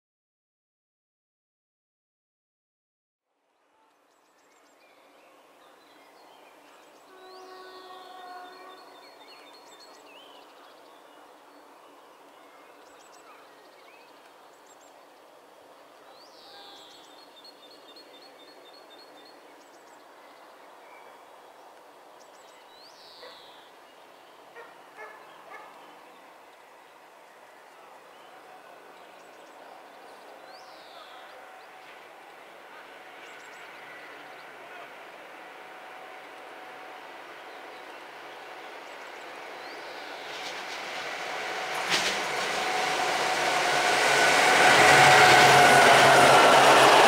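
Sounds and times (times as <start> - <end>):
birds singing: 4.2 - 15.0, 16.0 - 26.6
distant train horn: 6.9 - 9.5, 30.9 - 47.0.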